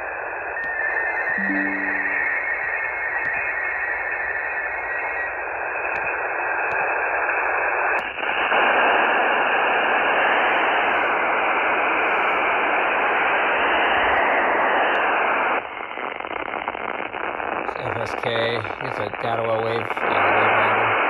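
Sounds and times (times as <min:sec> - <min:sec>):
radio receiver hiss: 0:17.5 - 0:21.0.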